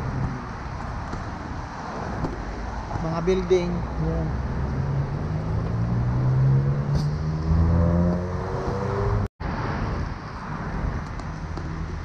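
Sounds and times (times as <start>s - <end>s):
traffic noise: 0.0s - 12.0s
vehicle engine accelerating: 3.8s - 9.8s.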